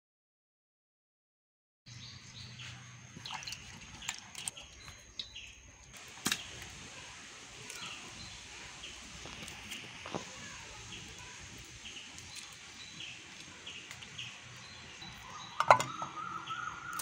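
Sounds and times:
bird chirps: 7.6 - 17.0.

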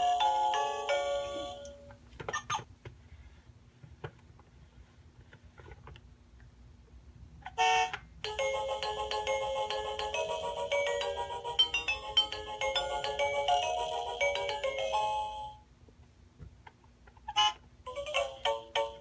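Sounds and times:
toy electronic melody: 0.0 - 1.9, 7.6 - 15.6, 17.3 - 19.0.

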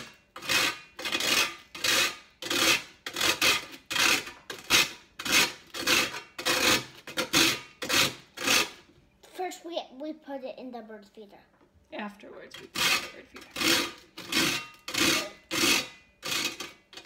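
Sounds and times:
toast rasping on metal grater: 0.0 - 8.8, 12.5 - 17.0.

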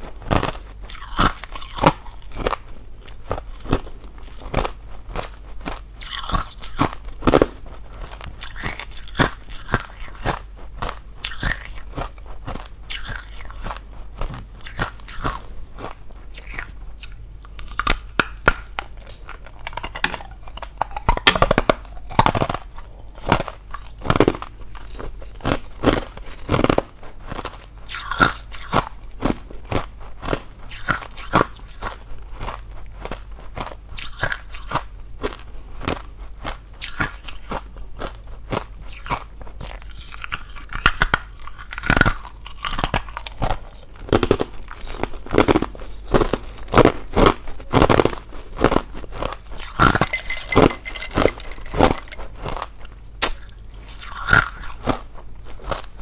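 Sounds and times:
person chewing ice: 0.2 - 31.3, 38.0 - 46.6.

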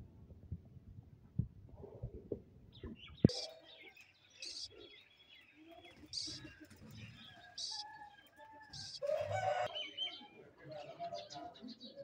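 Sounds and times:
parrot chicks squawking: 3.3 - 3.7, 4.4 - 4.8, 5.9 - 9.7.

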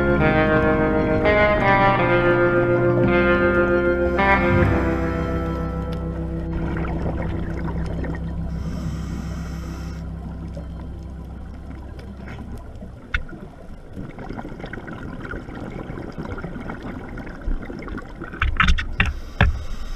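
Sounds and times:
low underwater rumble: 0.0 - 18.9
underwater bubbling: 0.0 - 19.9
sharp underwater clicks: 9.4 - 13.6.

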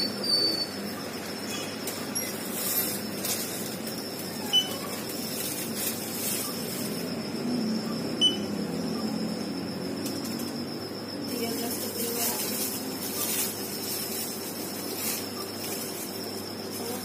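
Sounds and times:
faint high electronic whine: 0.0 - 17.0
short high beep: 8.2 - 8.5.

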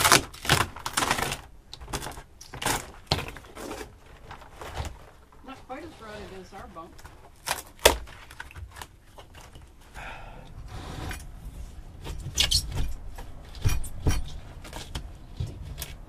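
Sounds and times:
scraper scraping plywood: 10.6 - 12.8
knocks and clatter of tools: 12.0 - 16.0.

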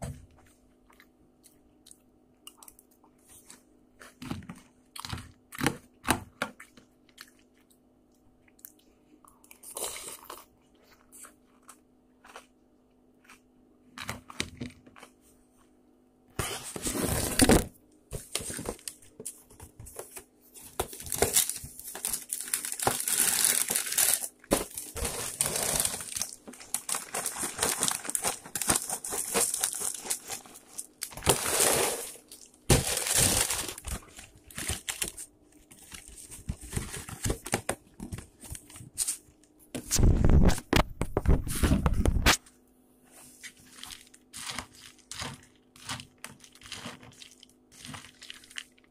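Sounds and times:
crunchy chewing of cereal: 0.5 - 15.8, 18.2 - 37.0, 43.4 - 48.9
cardboard box crinkling and tearing: 16.5 - 19.0, 20.7 - 35.2.

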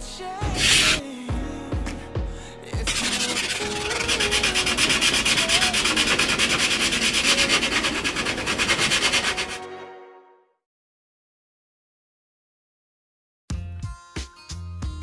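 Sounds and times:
sanding block rubbing on wood: 0.6 - 1.0, 2.9 - 9.6.

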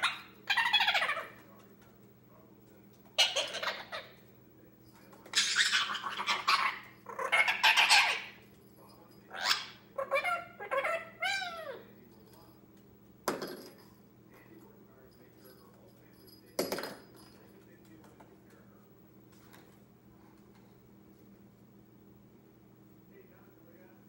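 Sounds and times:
parakeet harsh raspy calls: 0.0 - 1.4, 3.2 - 4.2, 5.3 - 8.4, 9.3 - 11.9
parakeet warbling chatter: 0.0 - 1.4, 3.2 - 4.2, 5.3 - 8.4, 9.3 - 11.9.

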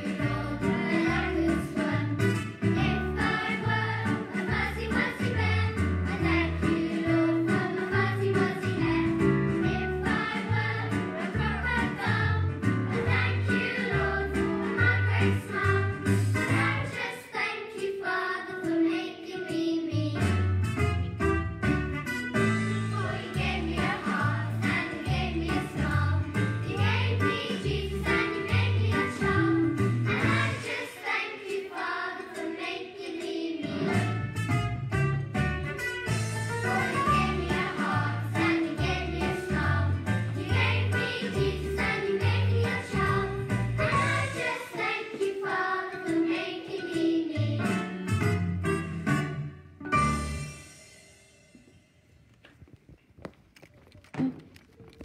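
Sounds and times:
children's worship song: 0.0 - 20.2, 22.7 - 34.1, 36.5 - 47.9.

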